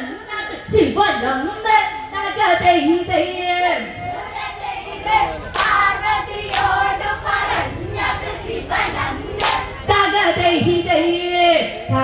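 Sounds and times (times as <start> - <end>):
women singing in chorus: 0.0 - 12.0
sharp hand claps: 5.5 - 5.8, 6.5 - 6.8, 9.4 - 9.7.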